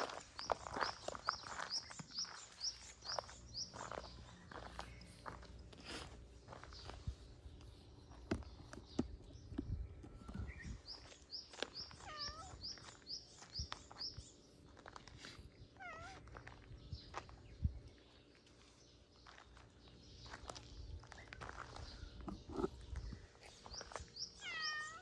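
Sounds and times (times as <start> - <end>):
footsteps on gravel: 0.0 - 9.2, 10.1 - 24.9
bird chirping: 0.0 - 25.0
wavering bird calls: 10.0 - 14.2, 21.3 - 25.0.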